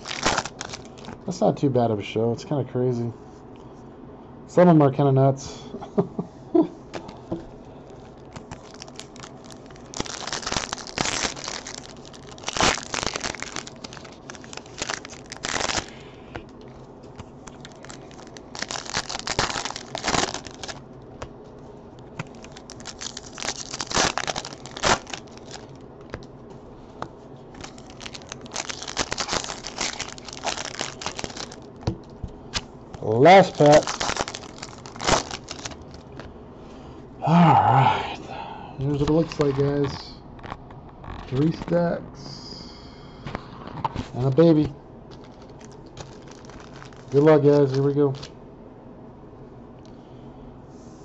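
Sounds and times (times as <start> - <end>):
wrappers crinkling and tearing: 0.0 - 1.3, 7.8 - 20.9, 22.0 - 26.4, 27.5 - 36.3, 38.9 - 41.7, 43.6 - 48.3.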